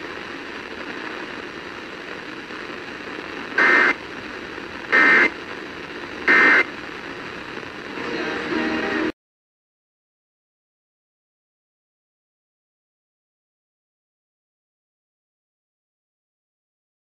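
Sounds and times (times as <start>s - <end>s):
radio hiss: 0.0s - 9.2s
warbling data bursts: 6.2s - 6.7s.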